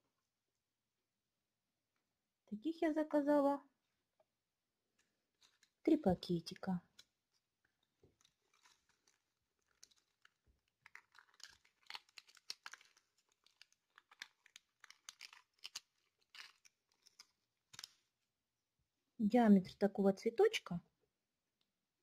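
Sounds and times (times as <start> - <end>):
plastic bag crinkling: 7.8 - 18.1.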